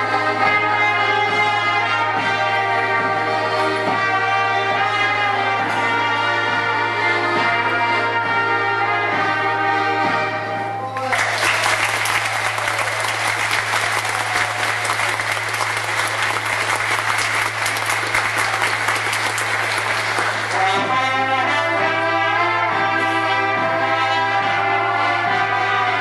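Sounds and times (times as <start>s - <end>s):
folk band playing: 0.0s - 26.0s
audience applauding: 10.9s - 20.9s.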